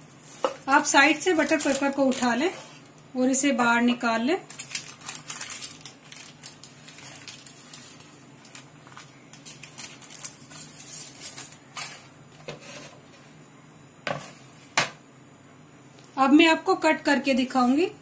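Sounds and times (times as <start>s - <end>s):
baking paper rustling and crinkling: 0.1s - 2.8s, 4.4s - 13.4s.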